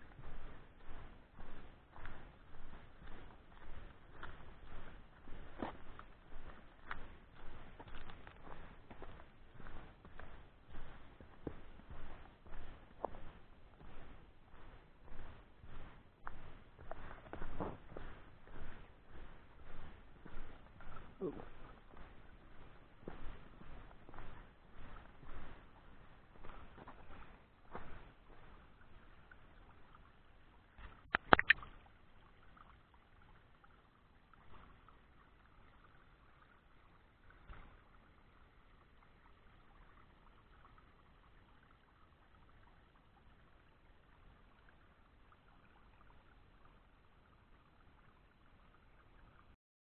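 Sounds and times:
stream trickling over rock: 0:00.0 - 0:49.6
sharp clicks: 0:31.1 - 0:31.6.

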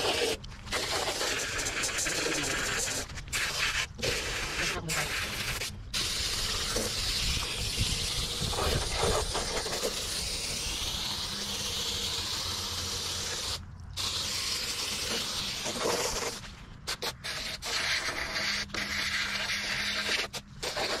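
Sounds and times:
hose spray hissing: 0:00.0 - 0:21.0.

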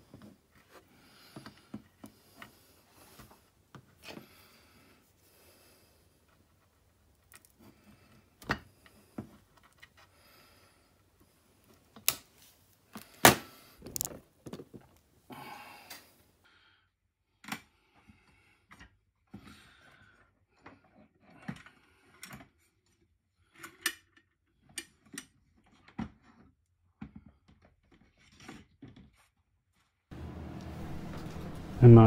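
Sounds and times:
plastic housing clicks and taps: 0:13.8 - 0:14.6.

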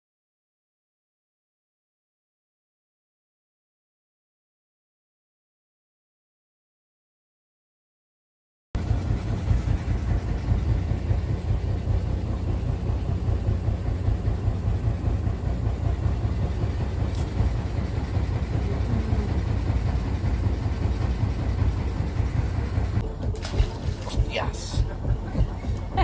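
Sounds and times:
boat engine rumbling: 0:08.8 - 0:26.0.

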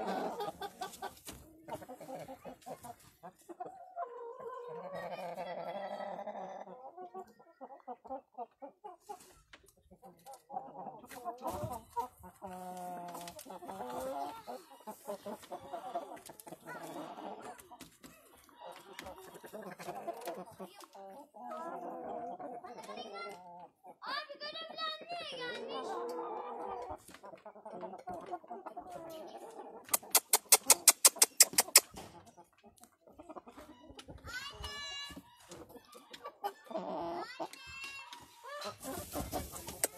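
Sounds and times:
chickens calling: 0:00.0 - 0:39.9
chickens clucking: 0:00.0 - 0:39.9
sharp clicks: 0:29.9 - 0:32.0.

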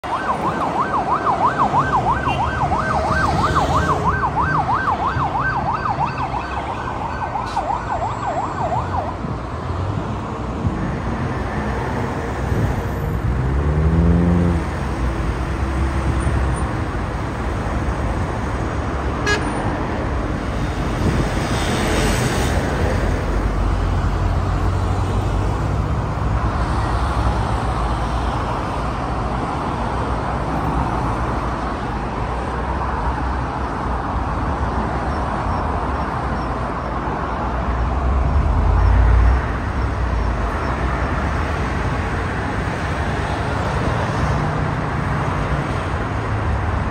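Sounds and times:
emergency siren wailing: 0:00.0 - 0:09.5
heavy city traffic: 0:00.0 - 0:46.9.

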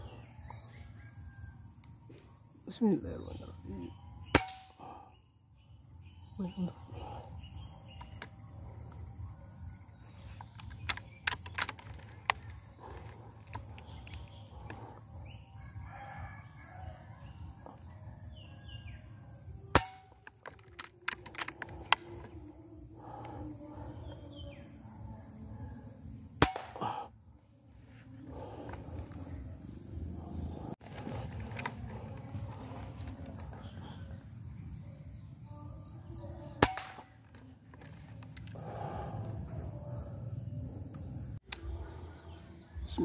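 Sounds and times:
birds calling: 0:00.0 - 0:00.7, 0:02.8 - 0:16.2, 0:27.9 - 0:41.4.

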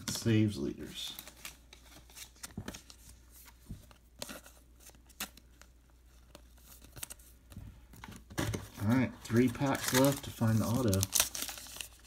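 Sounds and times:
wrapper tearing and crinkling: 0:08.8 - 0:12.0.

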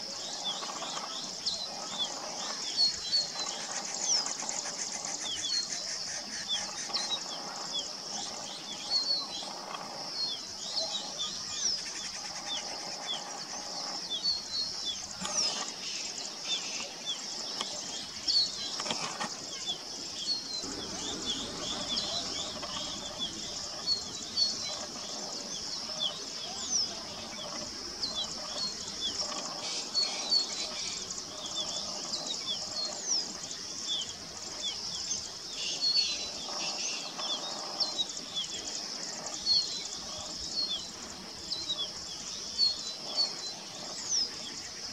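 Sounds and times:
steady high hiss: 0:00.0 - 0:44.9.

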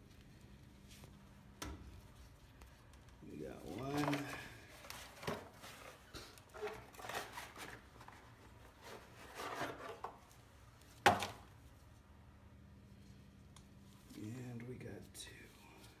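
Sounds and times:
brake pads scraping and rubbing: 0:03.6 - 0:10.3.

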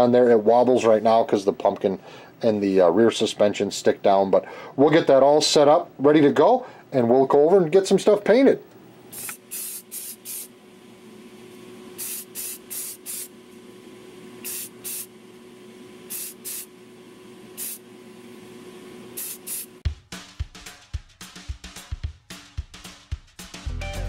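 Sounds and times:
spray paint can hissing: 0:09.1 - 0:10.5, 0:12.0 - 0:13.3, 0:14.4 - 0:15.1, 0:16.1 - 0:16.7, 0:17.6 - 0:17.8, 0:19.2 - 0:19.8.

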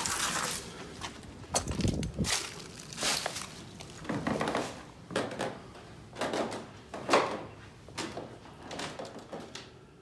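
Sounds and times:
footsteps crunching on dry leaves: 0:00.0 - 0:04.0.

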